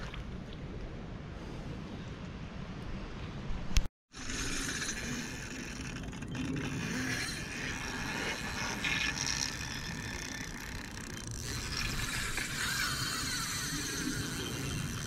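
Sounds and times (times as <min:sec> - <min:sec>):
fishing reel gears cranking: 0:04.2 - 0:15.0.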